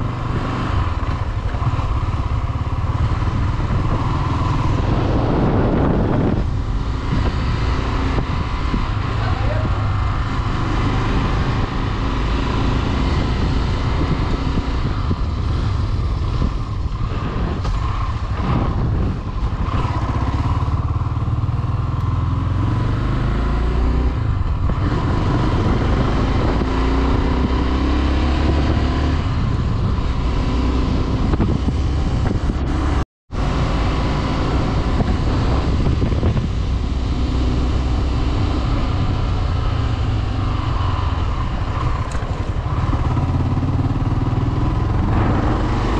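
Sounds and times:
heavy low rumble: 0.0s - 21.6s
motorcycle engine accelerating: 0.0s - 45.9s.

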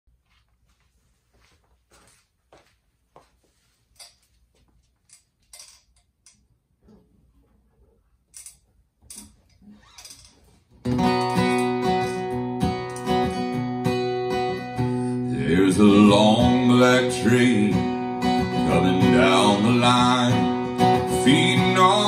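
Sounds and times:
acoustic guitar strumming chords: 10.8s - 22.0s.

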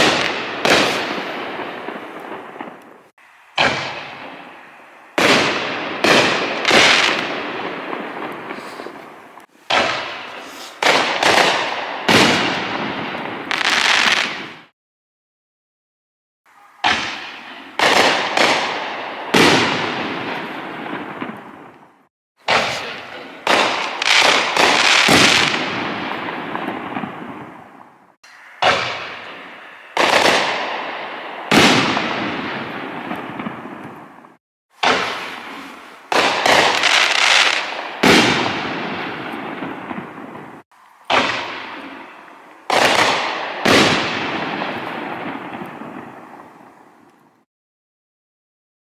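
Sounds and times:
fireworks hiss: 0.0s - 14.7s, 22.4s - 34.0s, 34.8s - 47.1s
fireworks launching and bursting: 0.0s - 14.7s, 16.5s - 47.4s.

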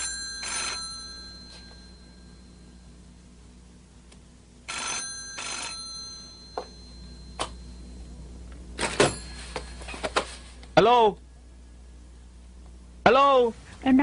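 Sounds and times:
telephone bell ringing: 0.0s - 3.0s, 4.7s - 8.2s, 8.8s - 10.5s.

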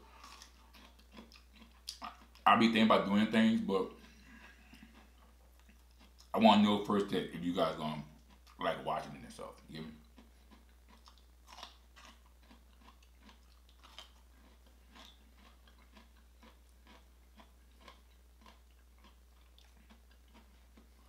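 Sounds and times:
man chewing wet crunches: 0.0s - 2.5s, 3.7s - 6.4s, 8.0s - 8.6s, 9.8s - 21.0s.

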